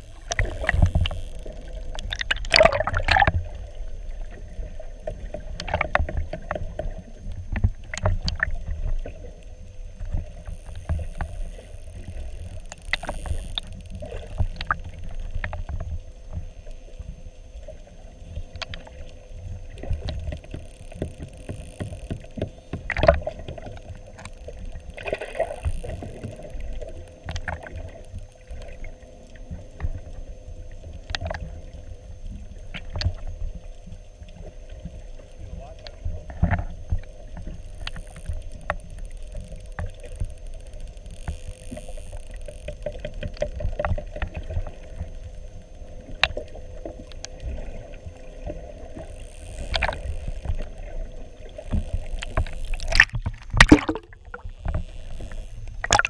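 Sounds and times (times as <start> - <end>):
faint steady hum: 0.0 - 56.0
underwater water rumble: 0.0 - 56.0
knocks and clicks: 20.2 - 23.6.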